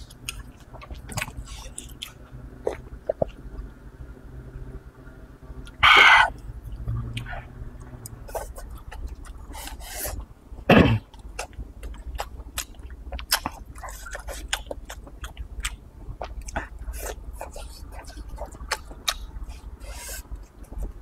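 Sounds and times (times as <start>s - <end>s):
wet chewing: 0.1s - 3.7s, 11.1s - 21.0s.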